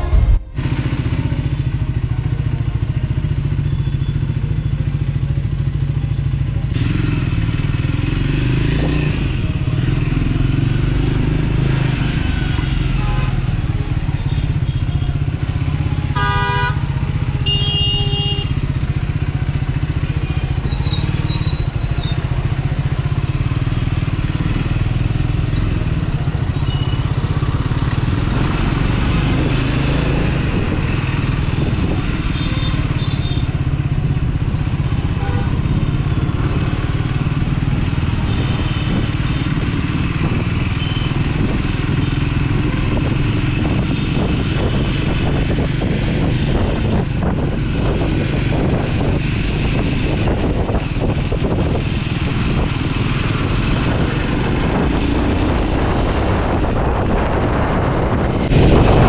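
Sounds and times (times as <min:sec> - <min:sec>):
short pitched horn blast: 0:00.0 - 0:00.7
motorcycle engine running: 0:00.0 - 0:59.0
wind and road noise: 0:00.0 - 0:59.0.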